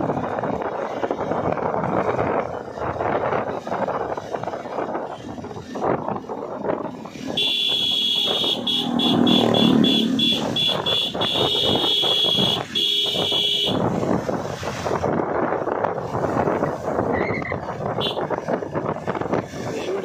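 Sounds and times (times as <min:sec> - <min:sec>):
road noise on wet road: 0:00.0 - 0:20.0
vehicle horn blasts and beeps: 0:07.3 - 0:13.8, 0:18.0 - 0:18.3.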